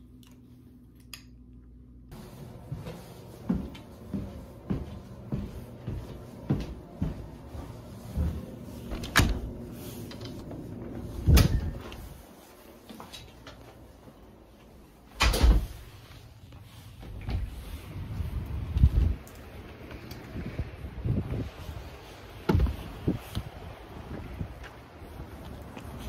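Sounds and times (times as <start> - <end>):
footsteps: 2.1 - 20.2.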